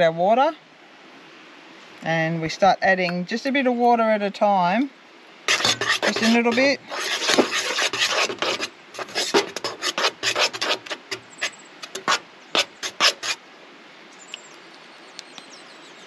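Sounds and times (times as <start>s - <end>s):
knife scraping flour in metal pot: 5.5s - 13.4s.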